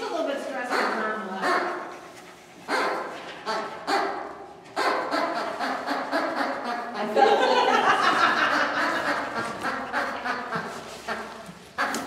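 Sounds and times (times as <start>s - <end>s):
indistinct talk: 0.0s - 2.0s
people laughing: 6.4s - 11.4s.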